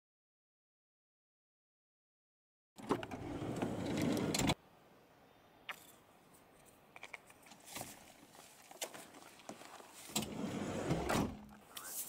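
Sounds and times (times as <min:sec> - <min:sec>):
van sliding door opening: 0:02.8 - 0:04.6, 0:10.1 - 0:11.4.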